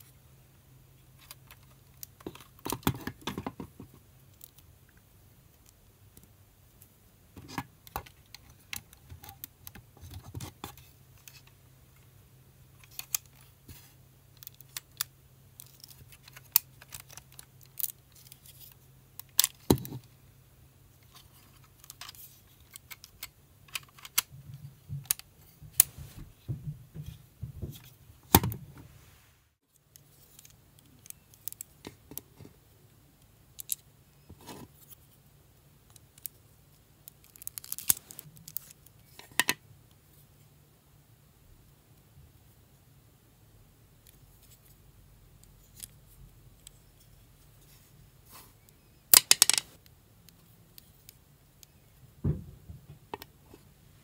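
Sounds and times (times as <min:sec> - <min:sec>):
plastic bricks clicking: 0:49.1 - 0:49.7.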